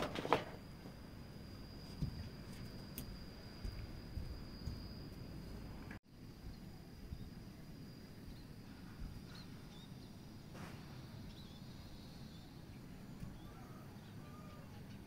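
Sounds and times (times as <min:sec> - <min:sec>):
steady low rumble: 0:00.6 - 0:13.4
faint bird chirps: 0:06.4 - 0:15.0.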